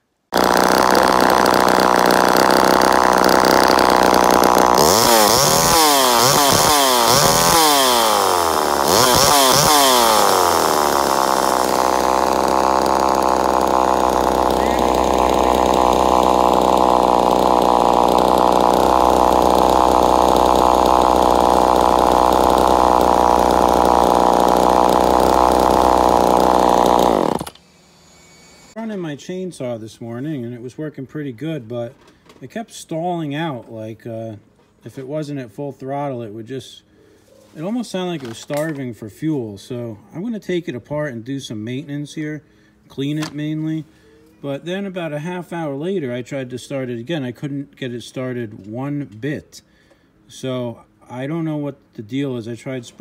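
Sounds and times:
chainsaw revving and idling: 0:00.3 - 0:28.8.

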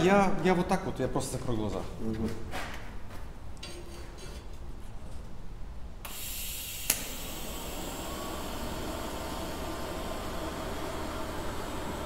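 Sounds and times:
welding arc hiss: 0:06.0 - 0:12.0
sharp crack: 0:06.8 - 0:07.2.

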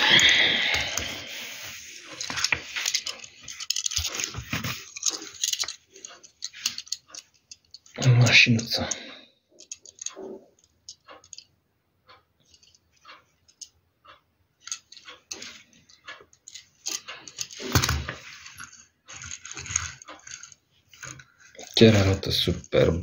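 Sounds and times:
rustling and clattering on paper: 0:00.0 - 0:08.0, 0:14.6 - 0:23.0.

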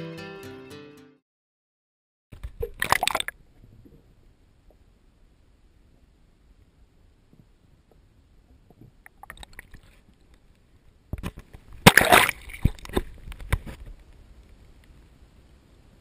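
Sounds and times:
water splashing against camera: 0:02.4 - 0:04.1, 0:07.9 - 0:15.0.

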